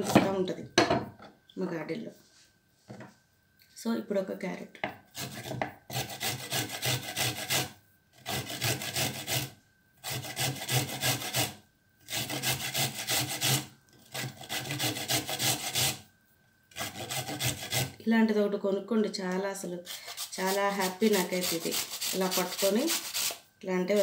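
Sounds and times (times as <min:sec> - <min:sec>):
carrot grating scrapes: 0:05.1 - 0:16.0, 0:16.7 - 0:18.0, 0:19.8 - 0:23.4.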